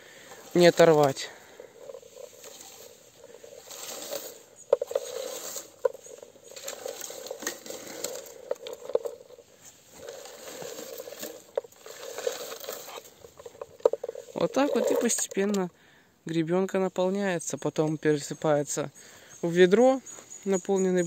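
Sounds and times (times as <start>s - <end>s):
leaves rustling: 0.0s - 15.7s
berries pattering into a scoop: 0.3s - 15.6s.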